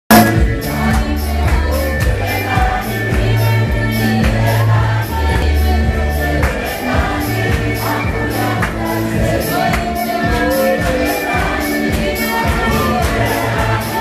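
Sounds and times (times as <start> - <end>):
sustained low bass notes: 0.1 - 9.7, 12.5 - 14.0
congregation singing: 0.1 - 14.0
steady percussion beat: 0.1 - 14.0.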